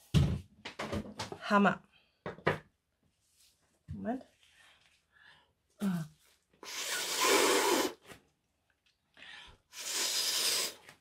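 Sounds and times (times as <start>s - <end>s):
person blowing puffs of breath: 6.6s - 8.0s, 9.3s - 11.0s.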